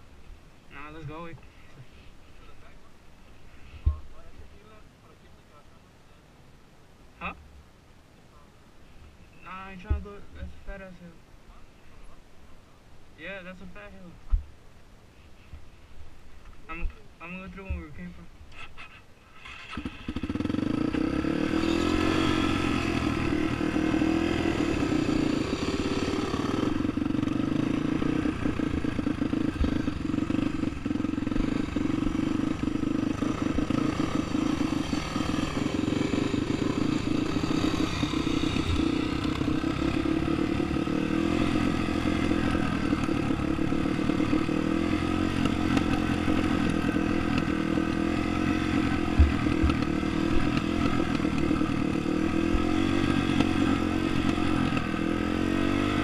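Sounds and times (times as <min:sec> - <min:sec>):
dirt bike engine running: 0:09.7 - 0:10.3, 0:19.7 - 0:56.0
tyres on loose dirt: 0:19.4 - 0:56.0.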